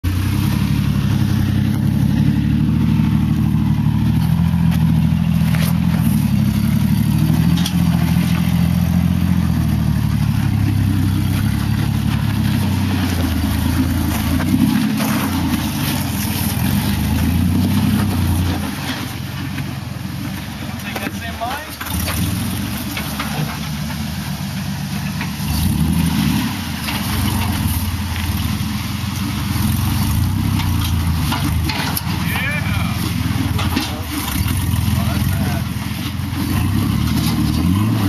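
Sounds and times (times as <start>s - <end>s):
truck engine revving under load: 0.0s - 38.0s.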